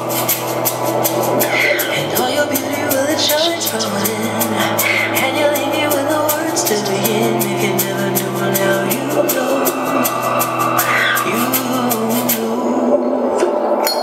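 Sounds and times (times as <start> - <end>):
slow pop song: 0.0 - 14.0.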